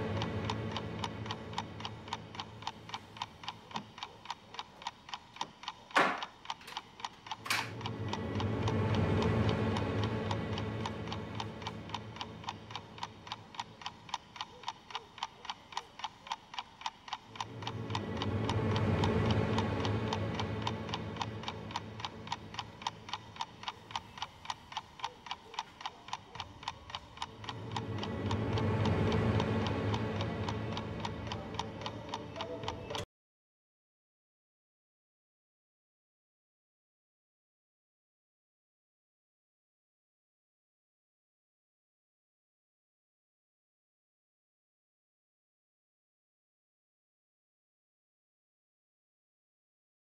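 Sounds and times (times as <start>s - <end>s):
low drone: 0.0s - 2.9s, 7.4s - 13.6s, 17.3s - 24.2s, 26.6s - 33.0s
clock-like ticking: 0.0s - 33.1s
rushing swells: 7.8s - 12.4s, 17.4s - 23.1s, 27.2s - 32.3s.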